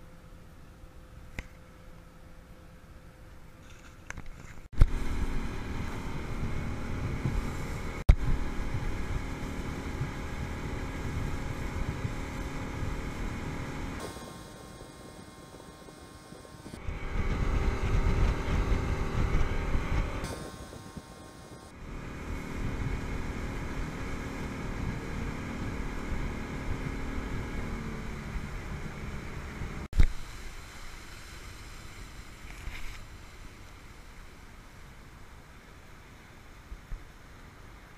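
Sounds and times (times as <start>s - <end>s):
wind gusting on microphone: 4.7s - 14.1s, 14.7s - 29.9s
motorboat engine running: 4.7s - 30.4s.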